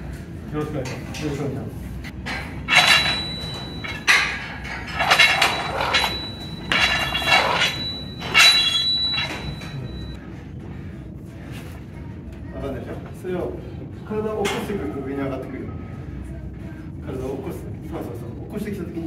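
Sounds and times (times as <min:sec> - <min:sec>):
barbell plates clanking: 0:02.1 - 0:10.2.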